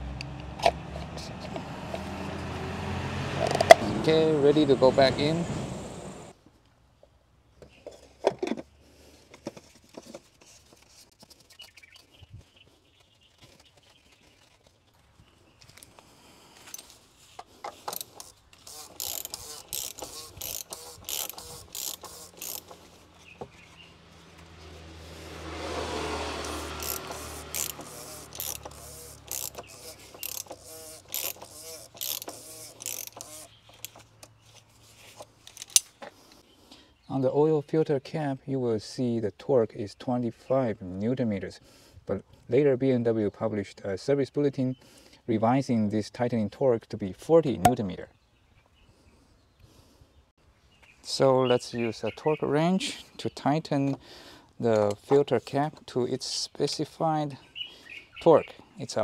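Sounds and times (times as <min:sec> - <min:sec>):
ratchet wrench clicking: 0:17.9 - 0:22.8, 0:26.4 - 0:34.1, 0:35.5 - 0:35.9.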